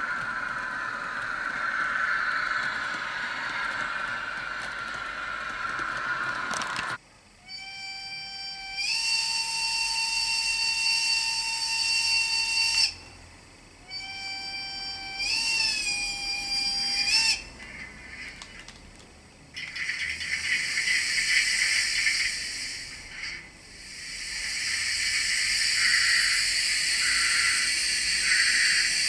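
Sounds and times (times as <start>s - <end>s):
steam locomotive whistle: 0.0s - 13.1s, 13.8s - 17.6s, 24.1s - 29.0s
steady hissing: 0.0s - 29.0s.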